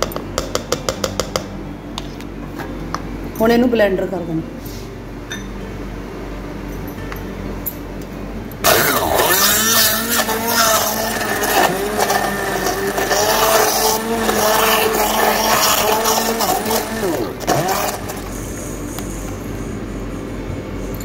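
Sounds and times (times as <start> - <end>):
stick blender motor whining: 8.6 - 18.4.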